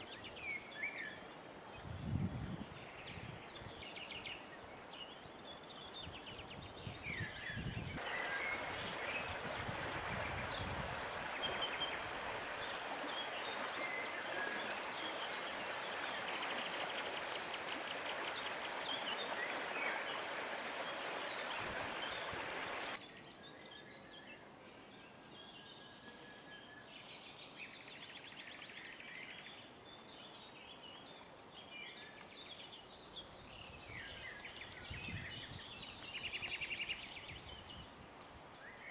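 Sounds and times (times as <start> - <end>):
river flowing: 8.0 - 23.0.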